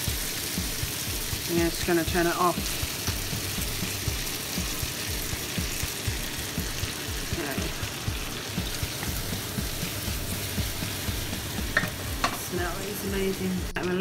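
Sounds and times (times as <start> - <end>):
fruit sizzling in a frying pan: 0.0 - 14.0.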